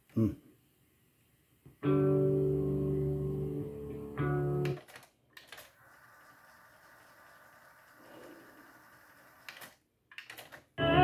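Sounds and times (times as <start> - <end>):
guitar chords from cassette: 1.8 - 4.8
tape winding whirr: 5.5 - 9.8.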